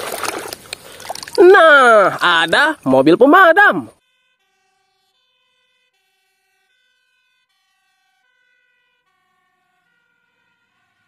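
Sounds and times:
fire engine two-tone siren: 3.1s - 11.0s.

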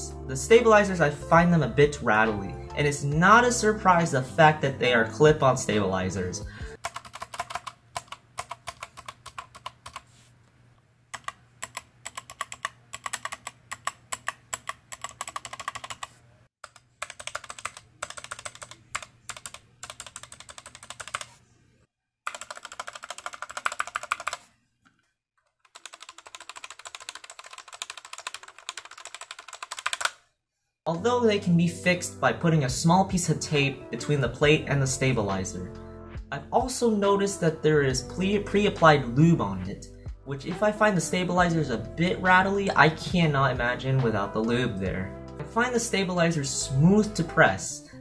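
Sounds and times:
keyboard keys clacking and rattling: 6.8s - 10.1s, 11.2s - 21.3s, 22.3s - 24.4s, 25.6s - 30.2s.

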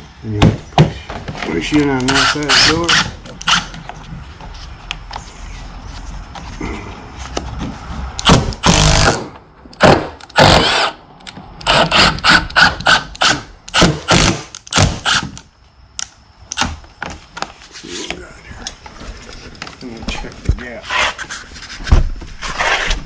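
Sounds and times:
impact driver driving screws: 2.0s - 3.8s, 8.2s - 11.0s, 11.6s - 15.4s.

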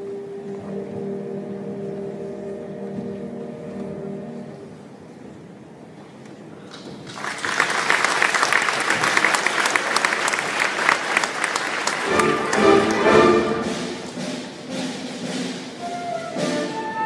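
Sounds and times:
wind band playing: 0.0s - 4.7s, 10.2s - 17.0s
audience applauding: 6.7s - 13.7s.

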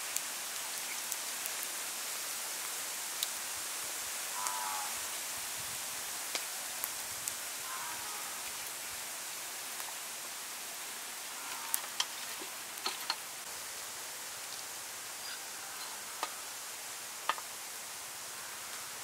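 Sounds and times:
steady hiss: 0.0s - 19.0s.

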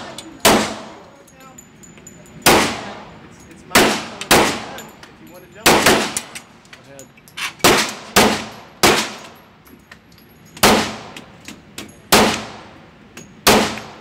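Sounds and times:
light clicks and clinks: 0.1s - 7.6s, 8.5s - 10.6s, 11.2s - 12.1s, 13.1s - 13.4s
pistol shots ringing indoors: 5.6s - 6.4s, 7.6s - 9.4s, 13.4s - 14.0s.

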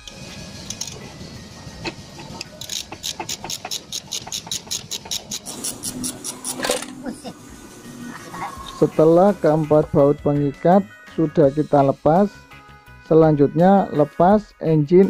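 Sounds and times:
ratchet wrench clicking: 0.0s - 1.0s, 2.2s - 6.9s.

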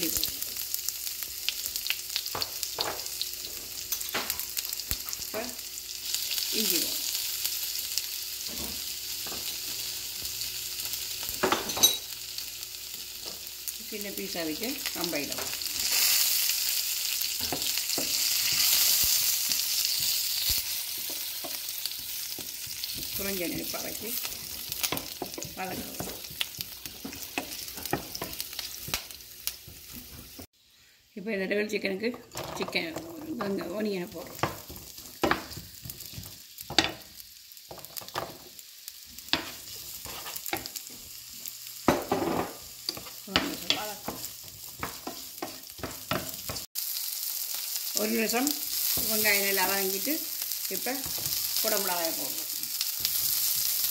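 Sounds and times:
aromatics sizzling in hot oil: 0.0s - 53.9s
wooden spatula scraping a pan: 39.4s - 40.8s.

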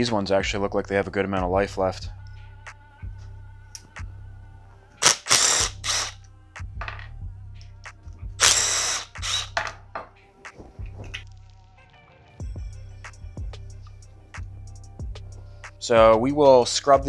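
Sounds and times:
background music: 0.0s - 17.0s
cordless drill spinning: 5.0s - 6.2s, 8.4s - 9.7s.

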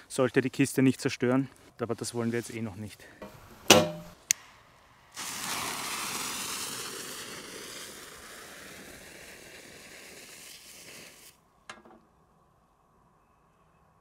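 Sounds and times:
firework hissing: 4.2s - 11.4s.

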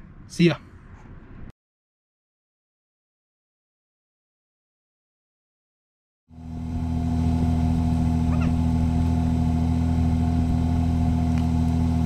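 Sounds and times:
car engine idling: 6.3s - 12.0s.

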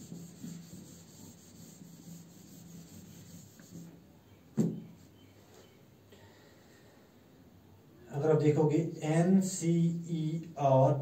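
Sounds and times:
whiteboard being wiped: 0.0s - 4.0s.

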